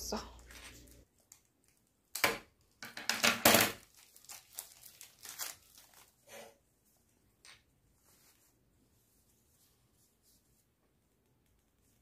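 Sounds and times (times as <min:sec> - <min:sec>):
plastic packaging crinkling: 0:03.6 - 0:06.3.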